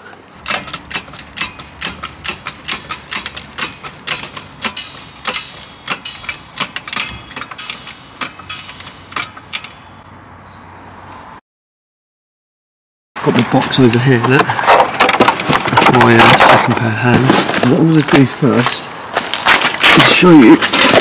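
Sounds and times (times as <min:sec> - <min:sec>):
trolley jack clicking: 0:00.4 - 0:10.0, 0:18.6 - 0:21.0.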